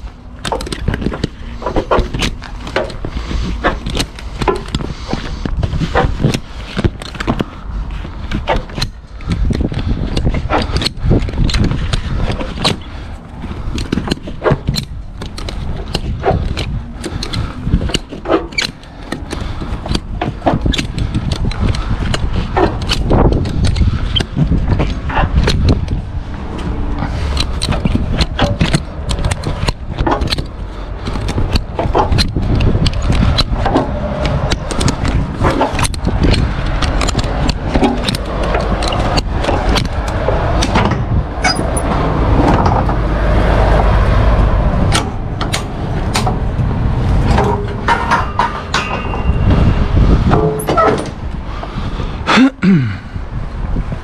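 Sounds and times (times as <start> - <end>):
sharp clicks and rattles: 0.0 - 52.0
wind rumble on microphone: 0.0 - 54.0.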